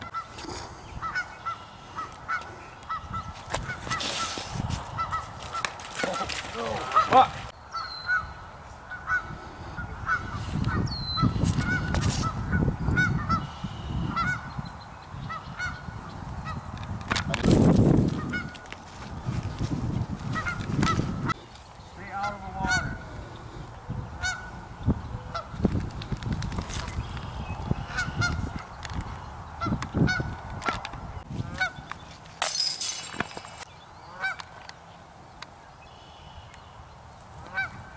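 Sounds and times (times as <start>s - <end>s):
wind buffeting microphone: 2.2s - 5.6s, 8.2s - 32.1s
geese honking: 4.9s - 7.3s, 22.1s - 23.0s, 37.4s - 37.8s.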